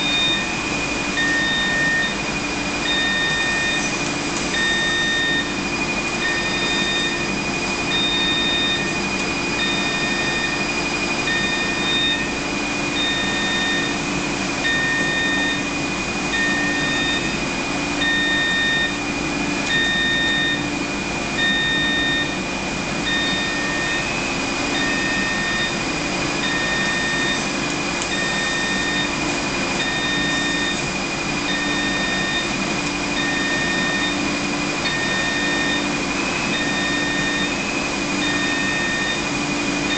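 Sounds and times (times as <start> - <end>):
machine hum and hiss: 0.0 - 39.9
electronic beep: 1.2 - 2.2, 7.9 - 9.0, 11.3 - 12.3, 13.0 - 14.0, 19.7 - 20.7, 33.2 - 34.2, 38.2 - 39.2.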